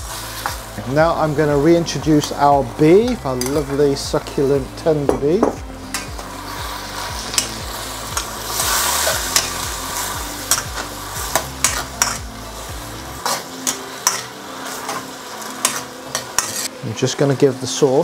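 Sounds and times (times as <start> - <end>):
sauce sizzling: 0.0 - 18.0
ladle scraping a wok: 13.2 - 16.8.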